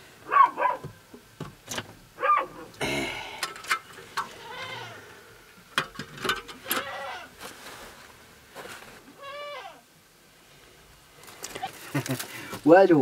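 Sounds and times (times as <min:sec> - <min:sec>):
high animal cries: 0:04.2 - 0:05.3, 0:06.6 - 0:07.4, 0:09.2 - 0:09.8.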